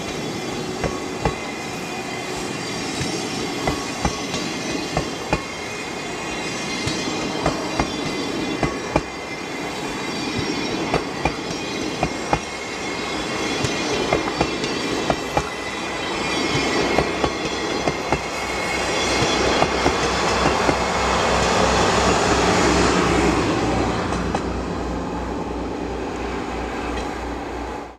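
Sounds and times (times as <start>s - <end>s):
train rumble: 0.0s - 27.9s
train wheels clicking over rail joints: 2.4s - 9.2s, 9.8s - 12.6s, 13.3s - 15.6s, 19.0s - 20.9s.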